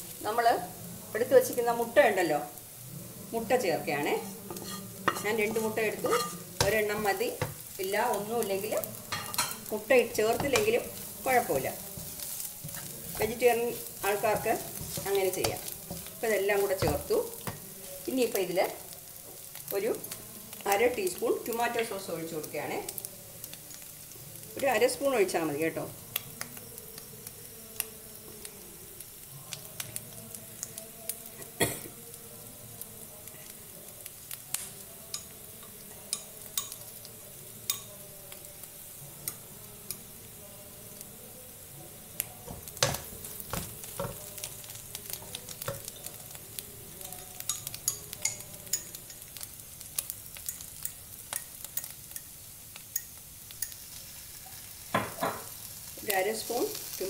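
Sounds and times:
food sizzling in oil: 0:00.0 - 0:57.0
wooden spatula stirring: 0:04.5 - 0:08.2, 0:09.1 - 0:18.4, 0:42.3 - 0:46.3.

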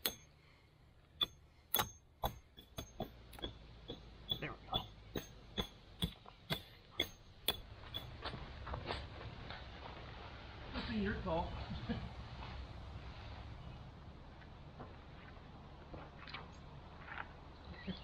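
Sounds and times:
stakes hammered metallic knocks: 0:00.0 - 0:00.3, 0:01.2 - 0:08.2.

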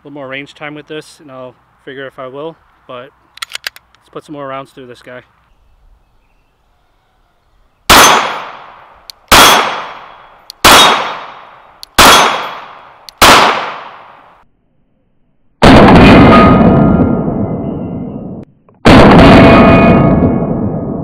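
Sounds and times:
pistol shots: 0:07.9 - 0:14.3.

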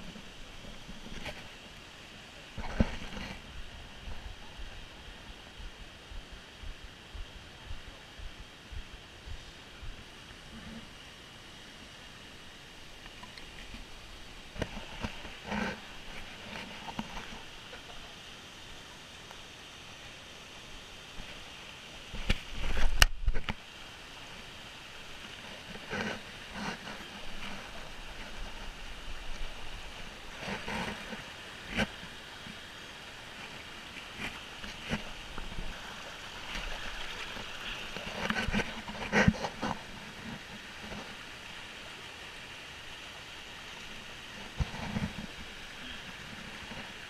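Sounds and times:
bumps and rustles near microphone: 0:00.0 - 0:01.9, 0:02.5 - 0:11.0, 0:13.0 - 0:18.1, 0:21.2 - 0:23.7, 0:25.1 - 0:41.6, 0:44.2 - 0:47.0
stream rushing over rocks: 0:00.0 - 0:47.0.

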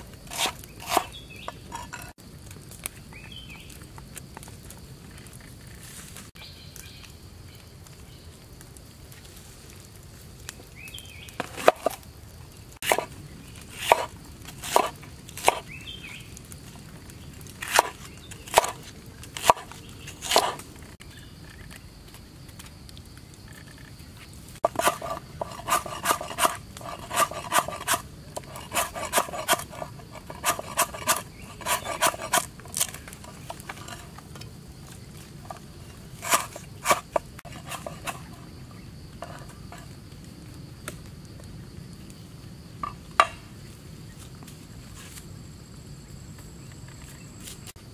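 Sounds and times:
knife chopping on cutting board: 0:00.3 - 0:01.1, 0:12.8 - 0:13.1, 0:13.8 - 0:15.6, 0:17.7 - 0:18.8, 0:19.4 - 0:20.6.

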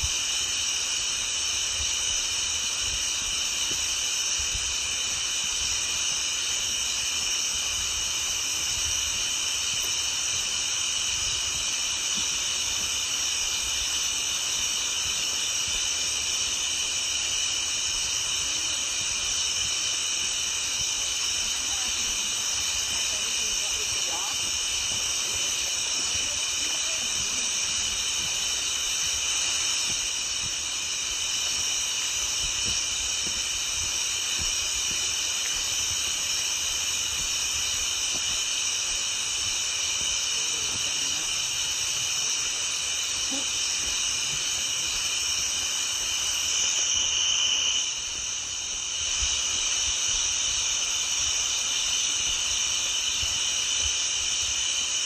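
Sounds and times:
frogs calling: 0:41.2 - 0:53.7.

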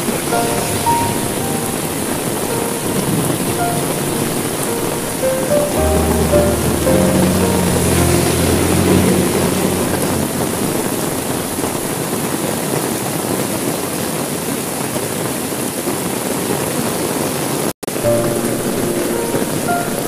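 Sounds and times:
low steady drone: 0:00.0 - 0:12.3
heavy rain on a window: 0:00.0 - 0:20.0.

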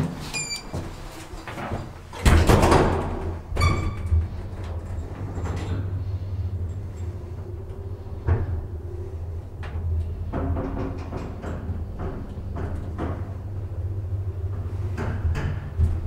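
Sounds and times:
elevator doors banging shut: 0:01.6 - 0:06.1.

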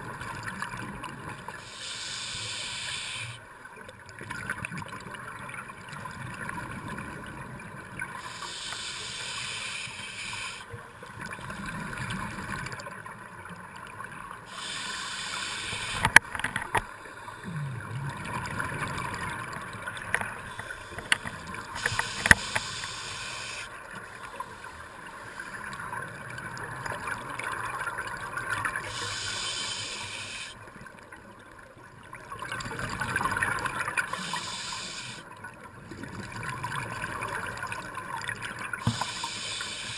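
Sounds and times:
regulator hissing inhale: 0:01.6 - 0:03.4, 0:08.2 - 0:10.7, 0:14.5 - 0:16.2, 0:20.4 - 0:25.6, 0:28.8 - 0:30.6, 0:34.1 - 0:35.2, 0:38.8 - 0:39.9.

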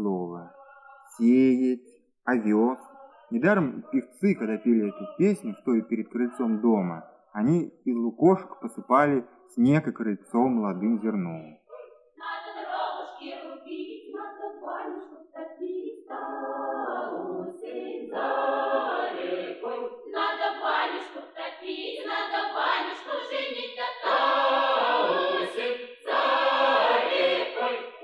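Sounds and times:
folk choir singing: 0:02.4 - 0:07.1, 0:10.7 - 0:28.0.

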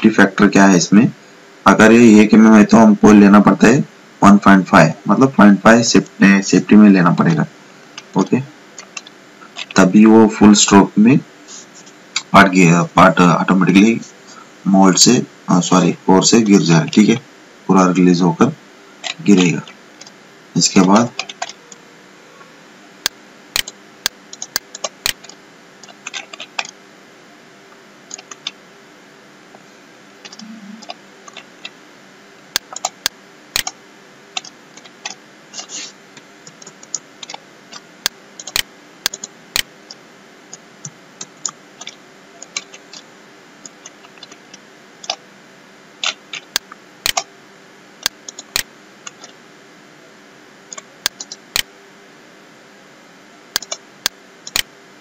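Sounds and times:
faint steady hum: 0:00.0 - 0:55.0
mouse and keyboard clicks: 0:24.4 - 0:26.8, 0:33.6 - 0:33.8, 0:38.4 - 0:39.7, 0:46.0 - 0:47.3, 0:53.6 - 0:53.8, 0:54.5 - 0:54.7.

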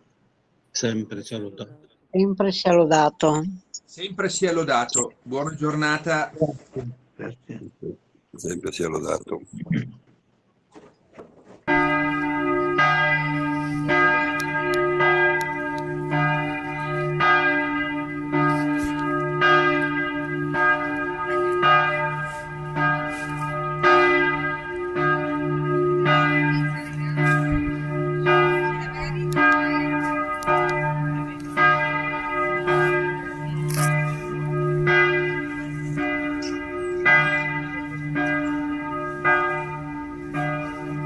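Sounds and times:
church bell struck with hammer: 0:11.7 - 0:41.0.

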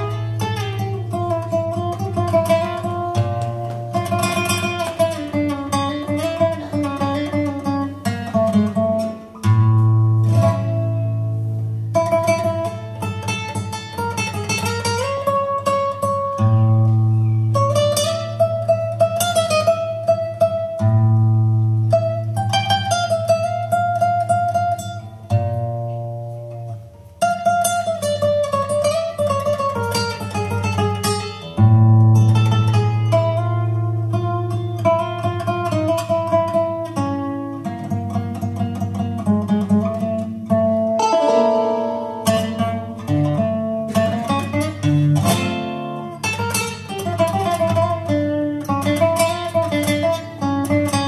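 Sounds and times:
acoustic guitar: 0:00.0 - 0:51.0
plucked string melody: 0:00.0 - 0:51.0.

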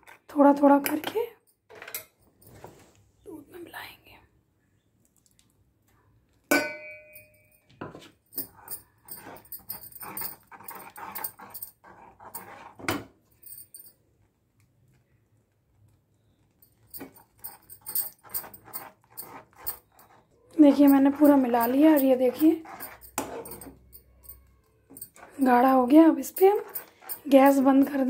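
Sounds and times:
steel bowl clinking on pan: 0:06.5 - 0:07.6, 0:17.0 - 0:24.4
ladle scraping and tapping pan: 0:17.0 - 0:23.8.

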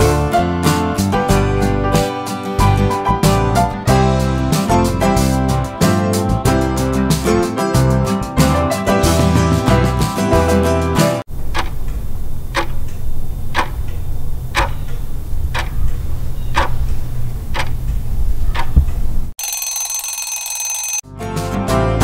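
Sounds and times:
steady low hum: 0:11.3 - 0:19.3
clock ticking: 0:11.4 - 0:17.8
alarm clock ringing: 0:19.4 - 0:21.0.

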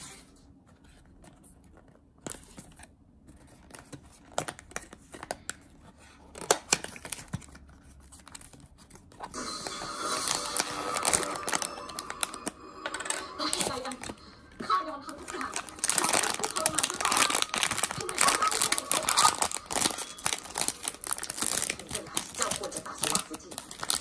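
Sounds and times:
foil bag crinkling: 0:06.3 - 0:24.0
cardboard box tearing and rustling: 0:10.4 - 0:12.3, 0:15.3 - 0:24.0.

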